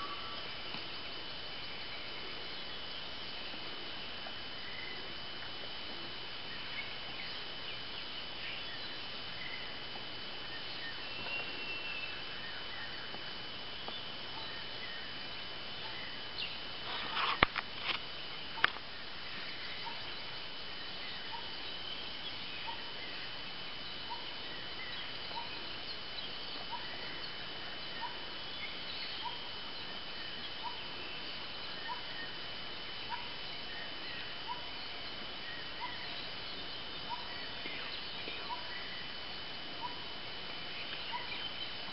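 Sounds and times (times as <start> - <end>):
high insect drone: 0.0 - 41.9.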